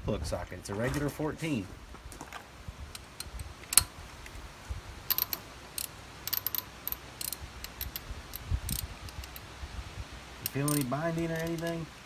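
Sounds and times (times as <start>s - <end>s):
ratchet wrench clicking: 5.1s - 9.4s, 10.4s - 11.8s.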